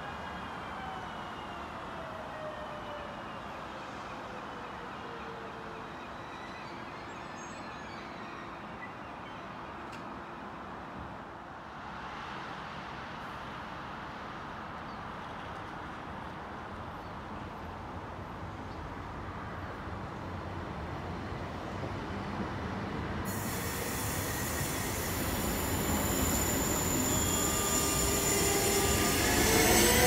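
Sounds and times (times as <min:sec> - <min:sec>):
train hum and hiss: 0:10.8 - 0:30.0
electric train motor whine: 0:23.5 - 0:30.0.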